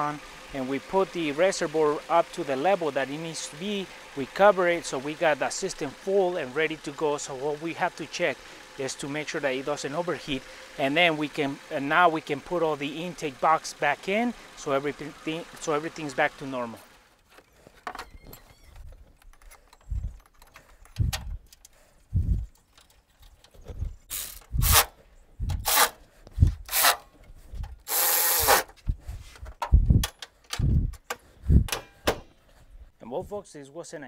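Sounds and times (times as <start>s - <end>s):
plastic parts knocking and clicking: 18.8s - 21.8s.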